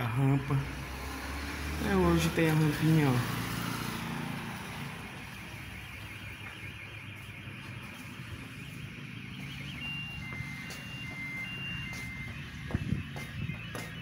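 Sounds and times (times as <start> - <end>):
car alarm: 0.0 - 14.0.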